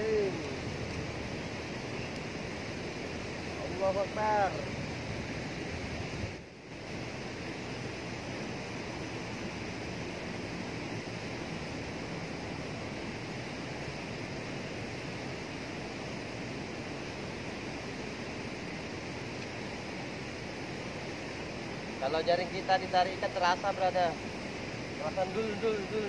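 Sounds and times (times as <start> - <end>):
water rushing through sluice gate: 0.0 - 26.0.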